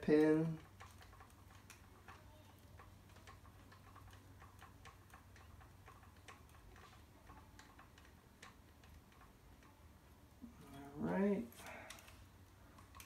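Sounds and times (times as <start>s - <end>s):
low steady hum: 0.0s - 13.0s
hex driver clicking on plastic parts: 11.6s - 13.0s.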